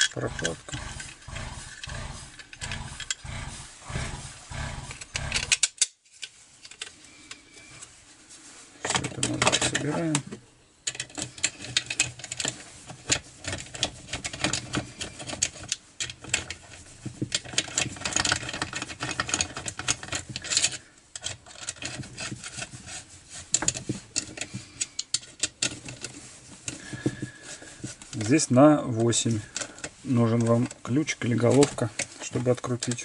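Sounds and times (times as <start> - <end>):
tool and parts knocking: 0.0 - 5.9
nut driver clicking on bolts: 4.9 - 5.9.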